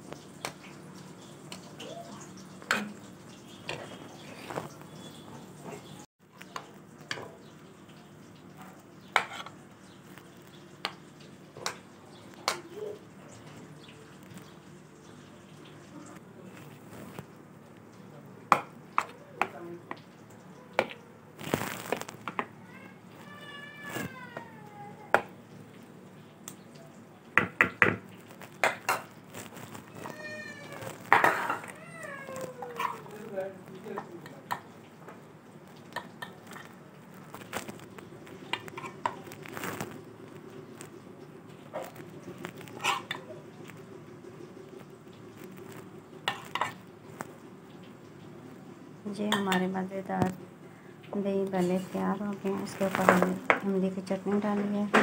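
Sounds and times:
cat meowing: 0:22.6 - 0:25.1, 0:29.6 - 0:33.4.

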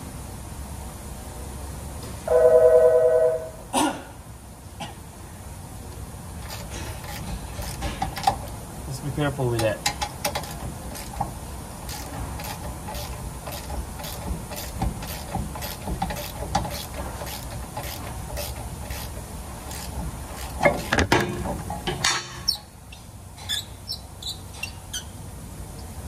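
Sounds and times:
hand ratchet clicking: 0:06.4 - 0:08.5, 0:09.6 - 0:21.0
metal clatter and scrape: 0:06.4 - 0:08.5.

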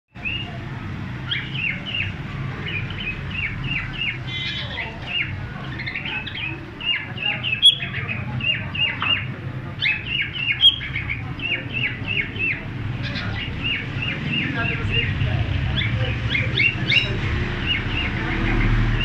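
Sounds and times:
cockatiels chirping: 0:00.2 - 0:19.0.

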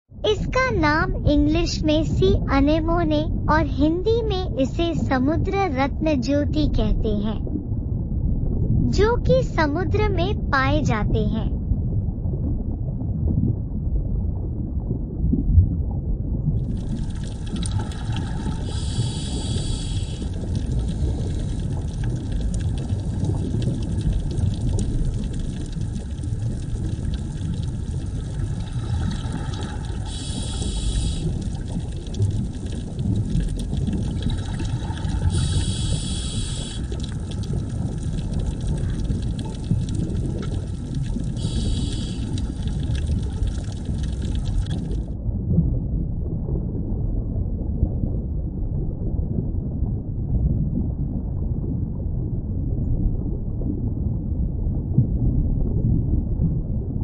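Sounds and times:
low underwater rumble: 0:00.1 - 0:57.0
high hiss: 0:18.6 - 0:20.3, 0:30.0 - 0:31.4, 0:35.4 - 0:36.9, 0:41.4 - 0:42.3.

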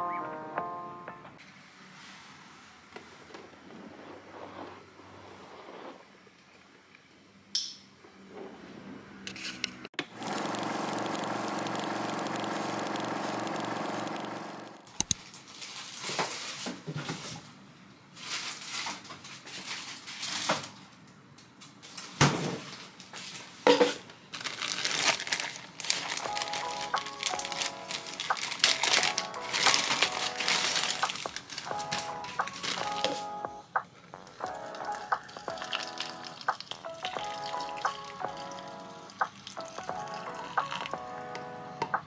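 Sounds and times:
steady hum: 0:10.2 - 0:14.9
plastic bag crinkling: 0:24.3 - 0:33.2, 0:34.2 - 0:38.0.

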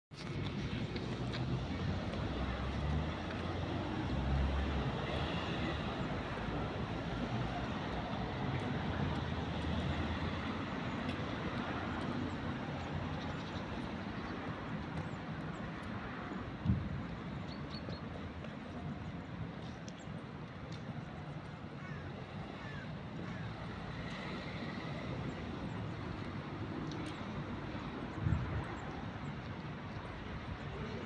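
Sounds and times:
steady urban roar: 0:00.1 - 0:31.0.

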